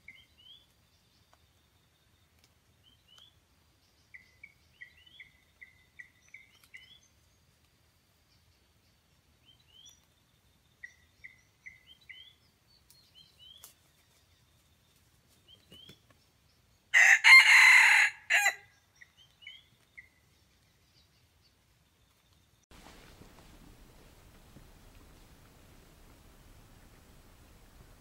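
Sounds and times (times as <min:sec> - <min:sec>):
small bird chirping: 0:00.0 - 0:07.6, 0:08.2 - 0:16.9, 0:18.6 - 0:22.6
rooster crowing: 0:16.9 - 0:18.7.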